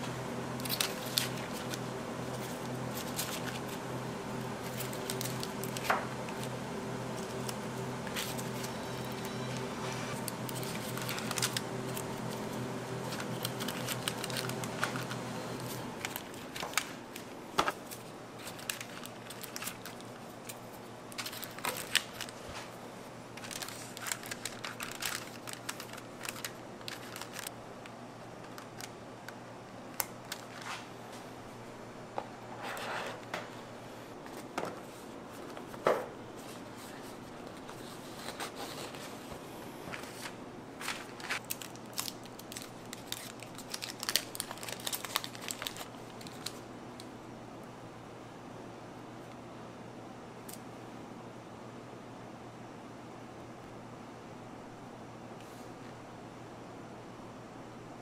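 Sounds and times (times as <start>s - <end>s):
wrappers crinkling: 0.6s - 3.9s, 4.5s - 27.6s, 29.9s - 31.0s, 34.2s - 46.7s.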